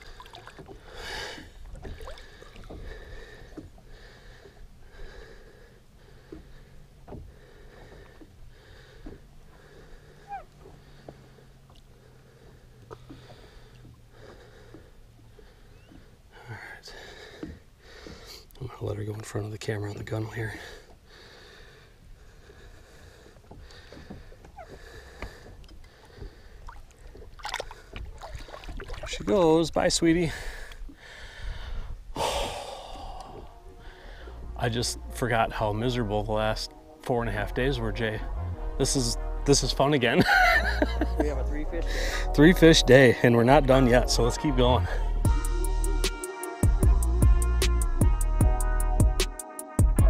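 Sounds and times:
water drips: 0.0 - 4.7, 23.2 - 29.8, 32.4 - 34.4
lake water sloshing and lapping: 0.0 - 45.1
fish splash: 26.6 - 29.2
low rumble: 32.5 - 46.1.

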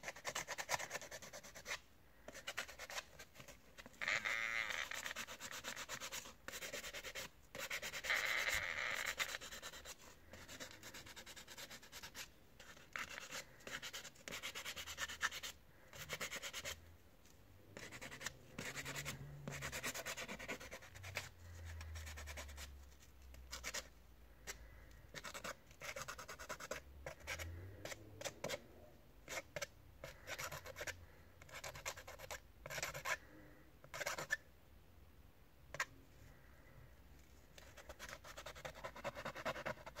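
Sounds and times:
sandpaper rubbing on plastic: 4.0 - 9.9.

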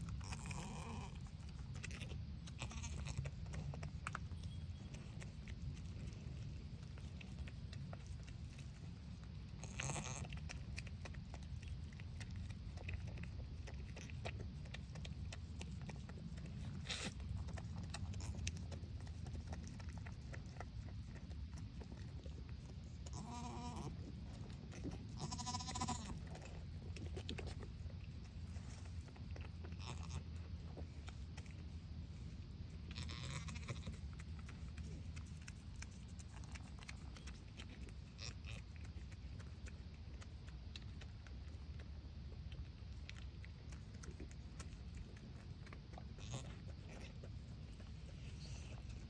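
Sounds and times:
low steady rumble: 0.0 - 49.0
goat bleating: 2.4 - 3.2, 23.1 - 24.0, 25.1 - 26.2, 29.8 - 30.3, 32.9 - 33.9, 46.2 - 46.5.

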